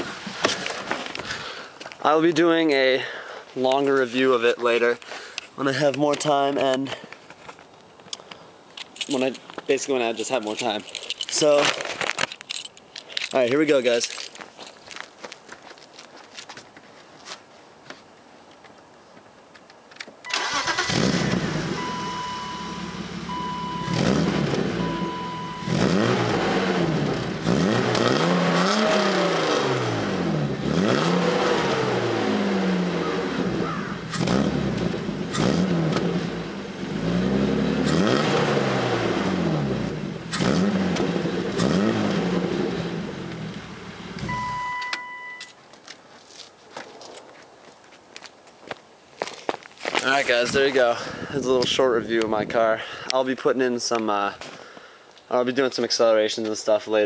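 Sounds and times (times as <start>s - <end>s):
car engine starting: 20.3s - 45.4s
car engine revving: 20.4s - 44.6s
short electronic beeps: 21.8s - 24.0s, 24.8s - 25.8s, 44.3s - 45.6s.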